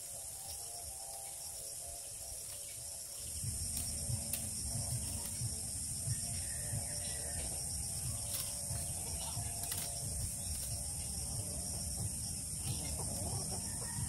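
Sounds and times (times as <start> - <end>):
bamboo strips clicking and creaking: 0.0 - 5.8, 7.3 - 11.6
steady high hiss: 0.0 - 14.0.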